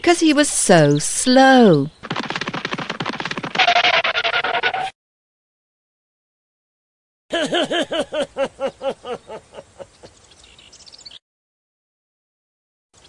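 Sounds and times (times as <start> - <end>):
cartoon character laughing: 7.3 - 10.1.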